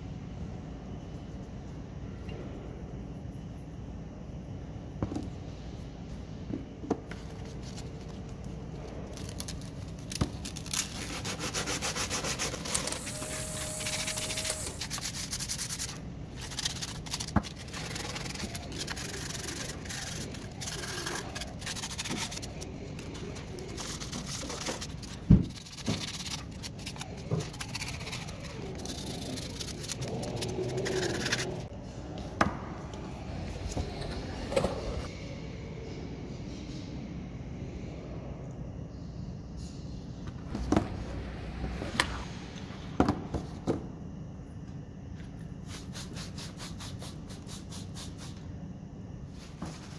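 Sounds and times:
sandpaper rubbing on metal: 0:10.6 - 0:22.6, 0:23.5 - 0:31.7.

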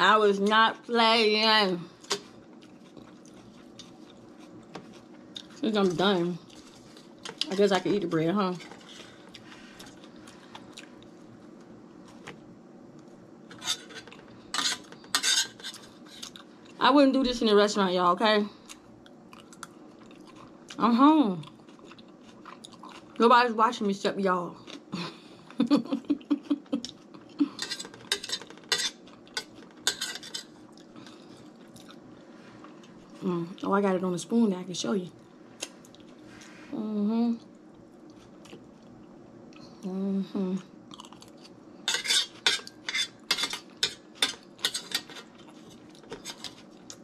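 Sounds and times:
metal spoon scraping a dish: 0:13.5 - 0:16.4, 0:27.6 - 0:30.6, 0:41.9 - 0:46.6.

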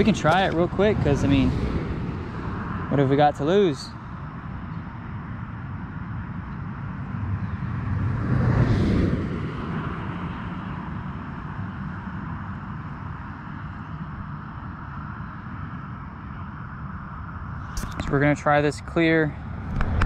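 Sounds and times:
vehicle passing by: 0:00.0 - 0:04.6, 0:07.0 - 0:11.8.

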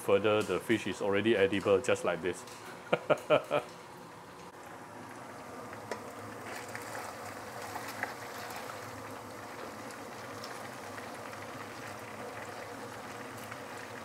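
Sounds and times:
fish deep-frying in oil: 0:04.7 - 0:14.0.

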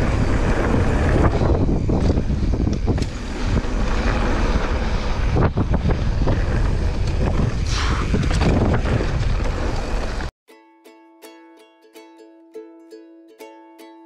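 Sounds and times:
mountain bike rumbling and rattling: 0:00.0 - 0:10.3
wind buffeting microphone: 0:00.0 - 0:10.3.

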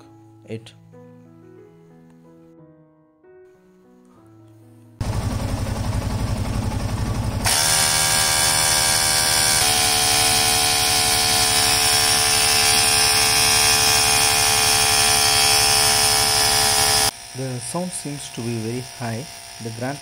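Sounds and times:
air compressor pulsing buzz: 0:05.0 - 0:20.0.

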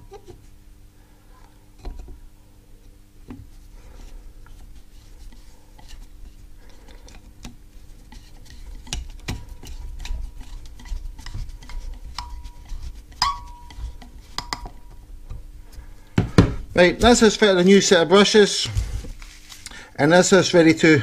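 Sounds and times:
faint metallic ring: 0:13.2 - 0:13.8.

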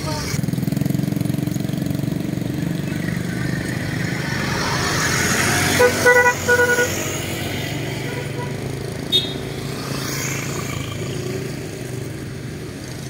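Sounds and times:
motorcycle engine: 0:00.0 - 0:13.0
traffic passing close by: 0:00.0 - 0:13.0
vehicle horn tooting: 0:05.7 - 0:07.3, 0:08.0 - 0:09.5.

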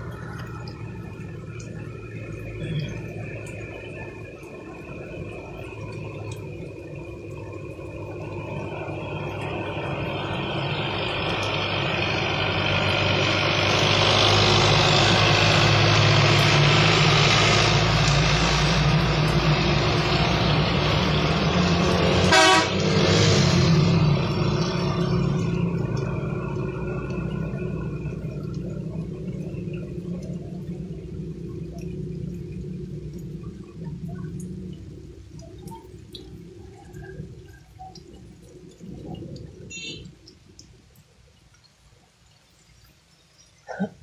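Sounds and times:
truck engines running: 0:00.0 - 0:41.5
tyres hissing on wet road: 0:00.0 - 0:44.0
horn blast: 0:22.2 - 0:23.0.

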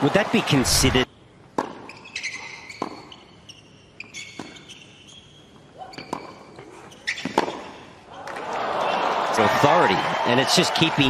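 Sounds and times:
shoe squeaks on court: 0:01.8 - 0:07.8.

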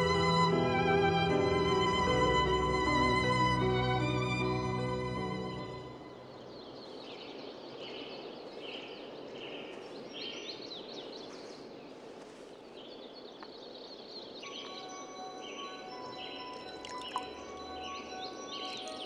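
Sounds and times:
small birds chirping: 0:05.8 - 0:19.0
ringing chime-like tones: 0:14.4 - 0:19.0.

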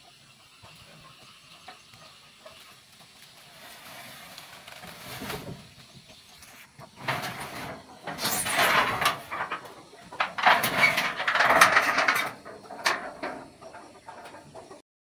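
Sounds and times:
metal roofing sheet scraping: 0:03.4 - 0:14.8.

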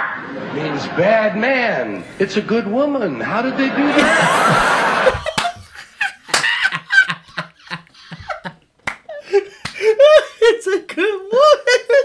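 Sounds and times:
men laughing: 0:03.4 - 0:12.0
hand claps: 0:05.1 - 0:05.7, 0:06.3 - 0:06.6, 0:08.8 - 0:09.9.

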